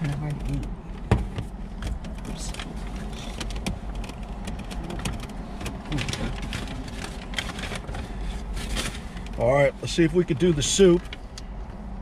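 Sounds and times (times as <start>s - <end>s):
plastic clicks and crinkles: 1.8s - 9.4s.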